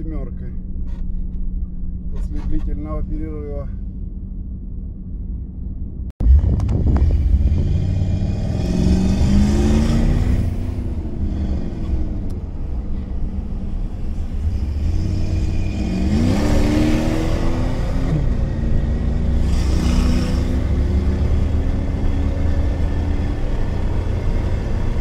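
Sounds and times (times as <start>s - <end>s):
road noise inside car: 0.0s - 25.0s
car engine accelerating: 6.2s - 25.0s.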